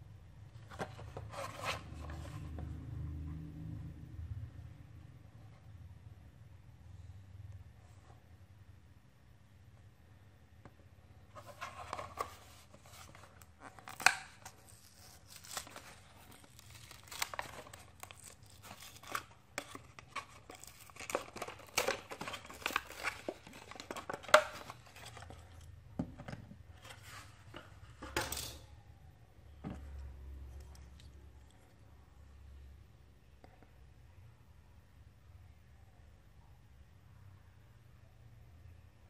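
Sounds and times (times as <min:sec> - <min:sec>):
plastic packaging torn and crinkled: 0:11.9 - 0:25.5.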